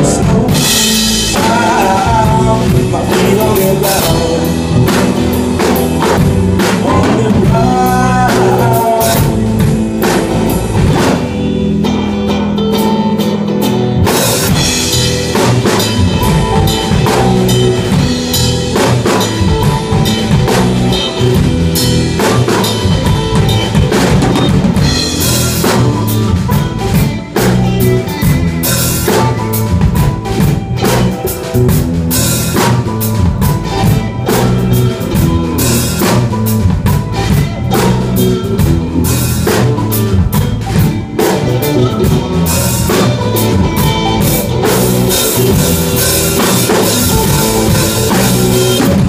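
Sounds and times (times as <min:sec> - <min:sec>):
blues band playing: 0:00.0 - 0:49.0
bass drum and snare strokes: 0:14.1 - 0:49.0.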